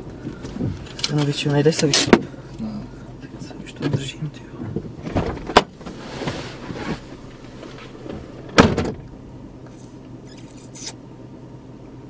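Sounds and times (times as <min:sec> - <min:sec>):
car cabin hum: 0:00.0 - 0:10.3
rustling: 0:05.1 - 0:08.4.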